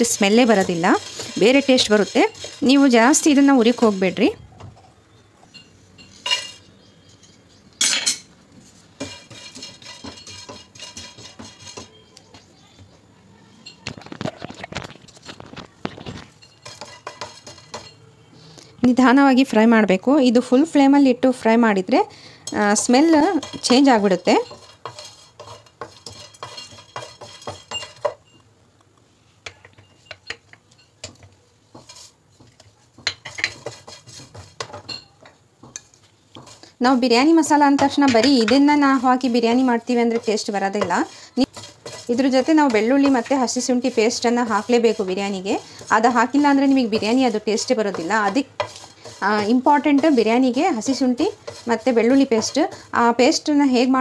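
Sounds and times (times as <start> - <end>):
wooden spatula scraping a pan: 0.0 - 4.4, 8.6 - 12.2, 13.8 - 18.0, 22.5 - 28.3, 29.3 - 54.0.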